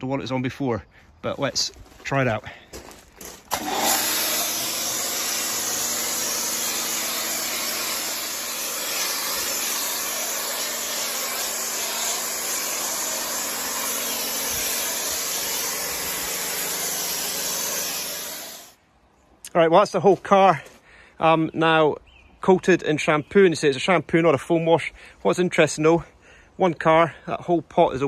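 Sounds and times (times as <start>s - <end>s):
pressure washer spray hissing: 3.5s - 18.8s
pump motor hum: 3.5s - 18.8s.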